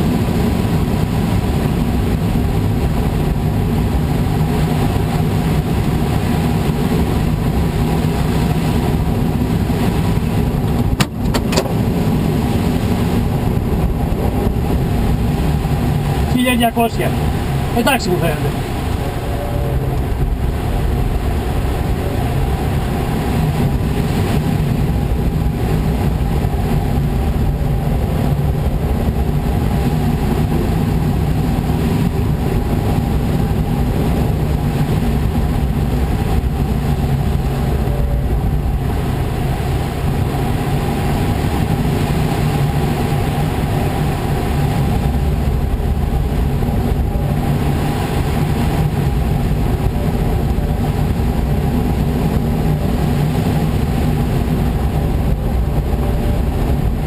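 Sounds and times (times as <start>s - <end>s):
wind rushing with low rumble: 0.0s - 57.0s.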